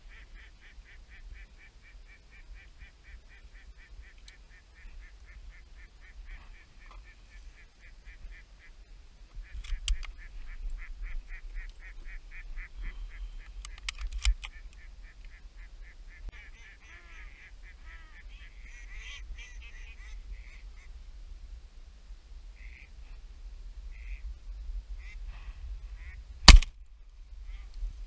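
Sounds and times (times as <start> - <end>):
sharp cracks: 26.4 - 26.8.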